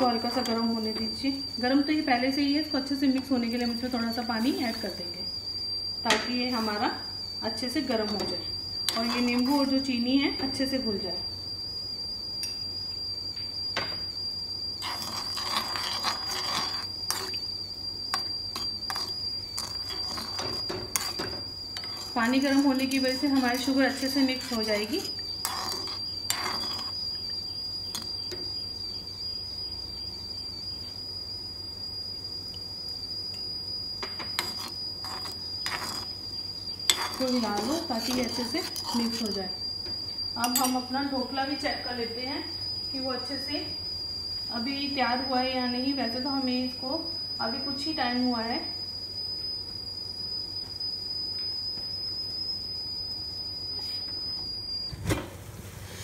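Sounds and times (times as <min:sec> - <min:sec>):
high-pitched whine: 0:00.0 - 0:55.7
cricket trilling: 0:00.0 - 0:56.0
spoon clinking in metal pan: 0:40.4 - 0:40.8.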